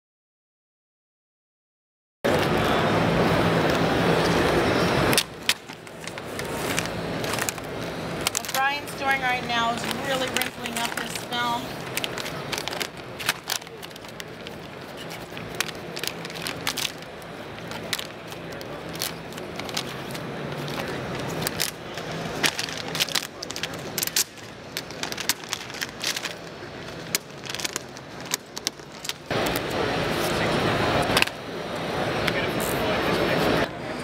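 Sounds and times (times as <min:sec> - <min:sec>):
steady rushing noise: 0:02.3 - 0:34.0
vinyl film crinkling: 0:05.1 - 0:30.4.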